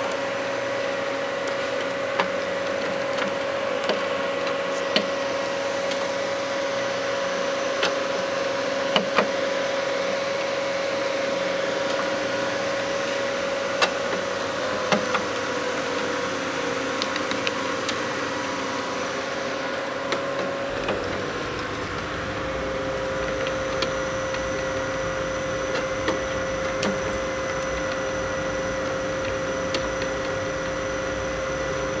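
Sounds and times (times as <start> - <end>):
electric motor hum and whine: 0.0 - 32.0.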